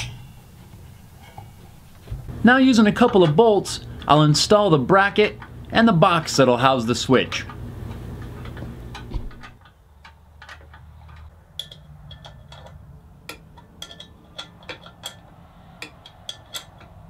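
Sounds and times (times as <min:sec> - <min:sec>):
low steady hum: 0:00.0 - 0:17.0
small metallic clicks and taps: 0:07.4 - 0:17.0.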